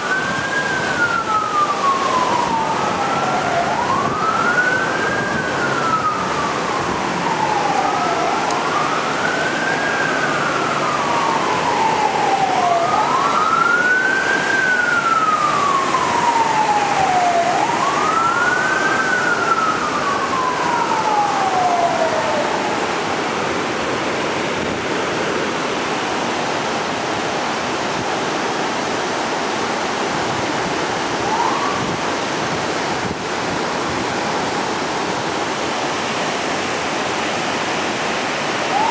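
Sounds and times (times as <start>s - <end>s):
emergency vehicle siren wailing: 0.0s - 38.9s
floodwater rushing: 0.0s - 38.9s.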